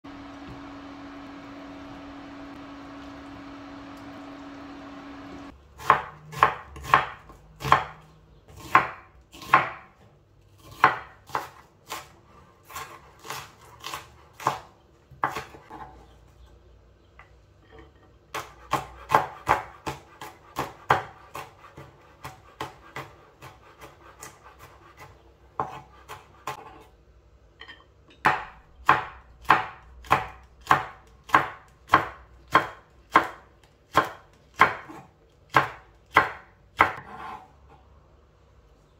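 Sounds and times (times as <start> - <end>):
knife chopping on wooden board: 5.8 - 10.0, 10.6 - 16.0, 18.3 - 26.9, 28.2 - 37.5.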